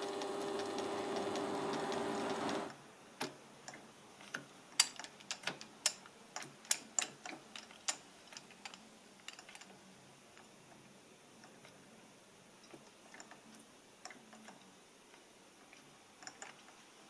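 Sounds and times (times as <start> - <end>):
sharp metallic clicks of lathe: 0.0 - 2.7.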